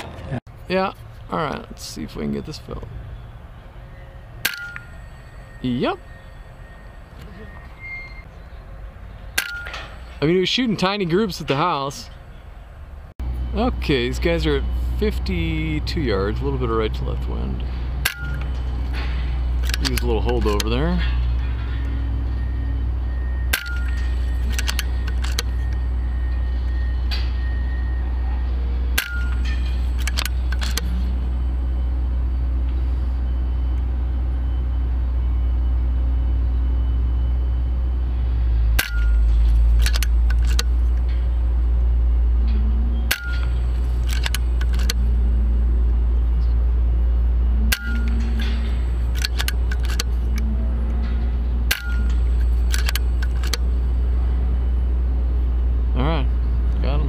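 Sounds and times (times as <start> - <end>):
steady low rumble: 0.0 - 57.0
quick clicks: 38.8 - 40.8, 43.1 - 45.0, 47.7 - 50.4, 51.7 - 53.7.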